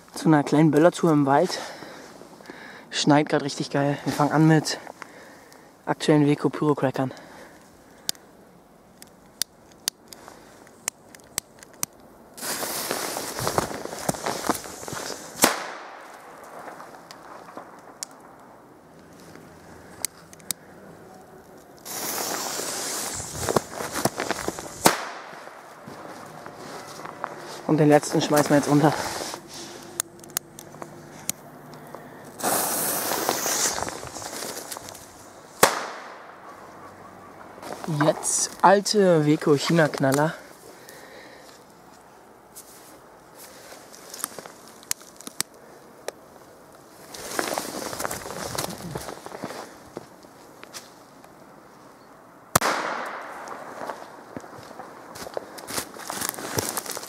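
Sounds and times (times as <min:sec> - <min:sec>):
sharp clicks: 0:08.9 - 0:12.1, 0:20.0 - 0:20.6
scuffling through dry leaves: 0:12.4 - 0:17.6, 0:21.6 - 0:30.0, 0:32.4 - 0:35.6, 0:37.6 - 0:45.8, 0:46.9 - 0:51.2, 0:53.6 - 0:57.0
firecracker bang with echo: 0:15.4 - 0:16.0, 0:24.8 - 0:25.4, 0:35.6 - 0:36.3, 0:52.6 - 0:53.6
fuse hissing: 0:21.8 - 0:24.9, 0:32.3 - 0:34.5.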